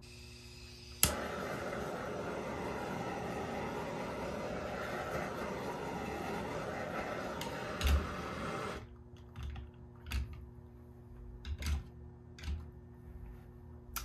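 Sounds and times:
torch flame hissing: 0:00.1 - 0:08.9.

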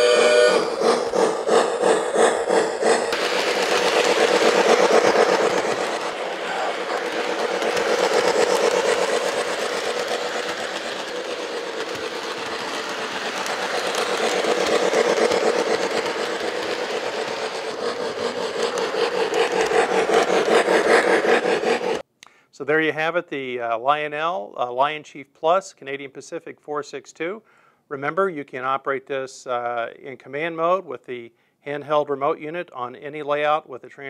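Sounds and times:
model train steam chuffing: 0:00.0 - 0:22.0
model train wheels and motor: 0:00.0 - 0:22.0.

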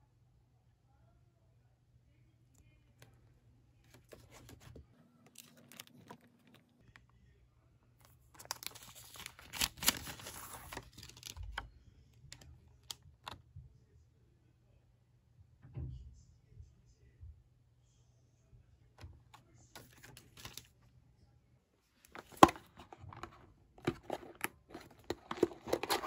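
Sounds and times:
cellophane crinkling: 0:08.4 - 0:11.6, 0:22.1 - 0:26.0.

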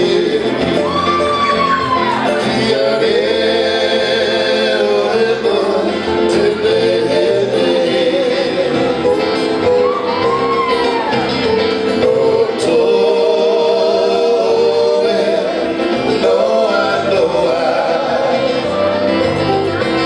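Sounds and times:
man singing long notes: 0:00.0 - 0:01.5, 0:11.9 - 0:19.2
acoustic guitar: 0:00.0 - 0:20.0.

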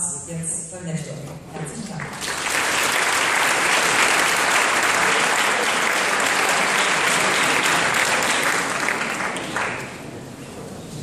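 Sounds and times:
large crowd clapping: 0:01.8 - 0:10.2.

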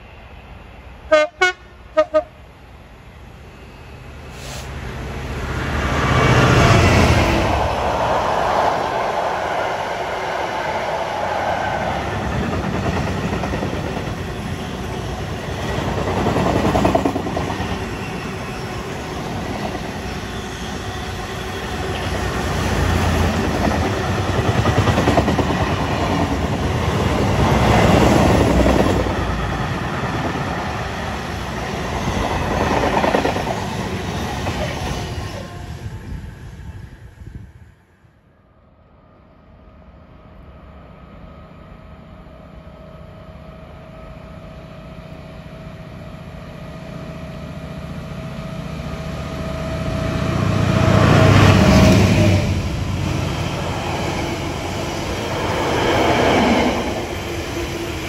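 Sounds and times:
diesel locomotive passing: 0:00.0 - 0:58.0
train wheels clattering on rails: 0:12.2 - 0:18.5.

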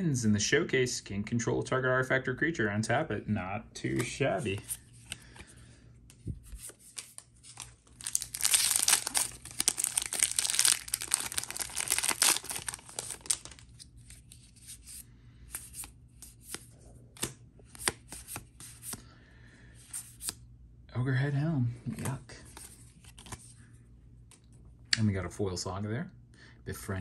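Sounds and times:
foil wrapper tearing and crinkling: 0:07.0 - 0:13.8.

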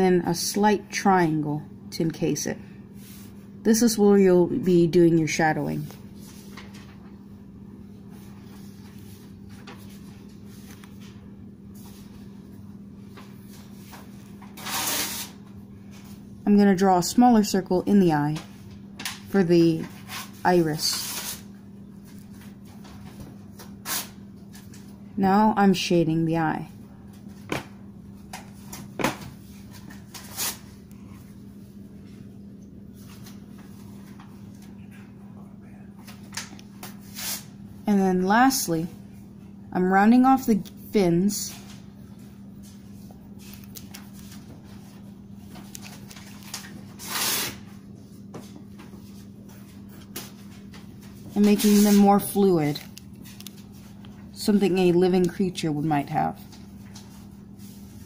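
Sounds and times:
steady low hum: 0:00.0 - 0:58.0
paper scraping rustle: 0:14.6 - 0:15.4.

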